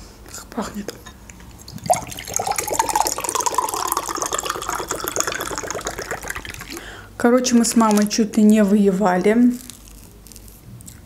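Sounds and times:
soda pouring into glass: 1.6s - 7.0s.

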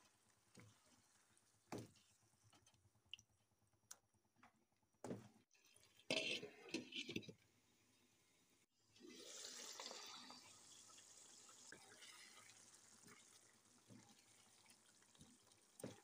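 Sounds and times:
gravy sizzling and bubbling: 5.5s - 16.0s.

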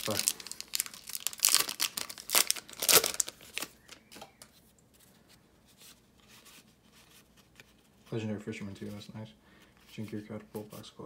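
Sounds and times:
foil wrapper crinkling: 0.0s - 4.1s
cards rustling: 0.0s - 8.1s.

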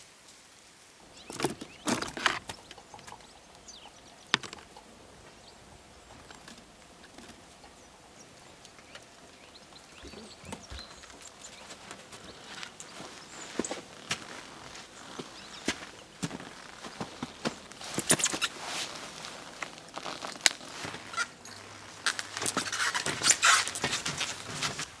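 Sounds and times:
faint high bird chirps: 7.0s - 13.8s.

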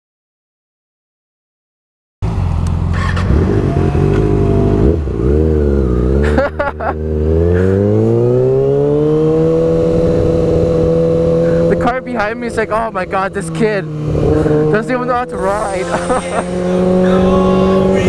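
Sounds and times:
motorcycle engine accelerating: 2.2s - 18.0s.

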